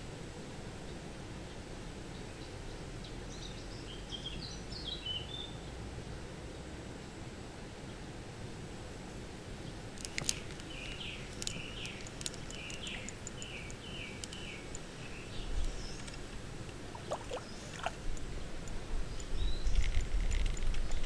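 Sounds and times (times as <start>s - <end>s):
songbird singing: 0.8s - 5.7s, 9.6s - 21.0s
sharp ticks: 10.0s - 14.9s.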